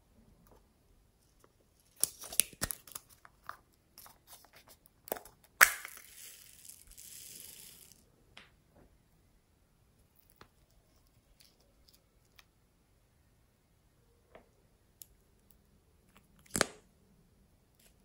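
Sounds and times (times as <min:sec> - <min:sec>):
beads spilling hiss: 0:05.6 - 0:08.0.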